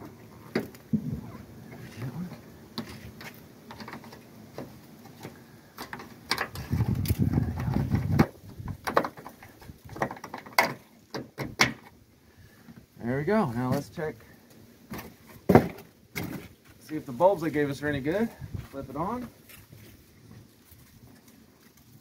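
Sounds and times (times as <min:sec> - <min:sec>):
rough rumbling scrape: 0:06.5 - 0:08.7.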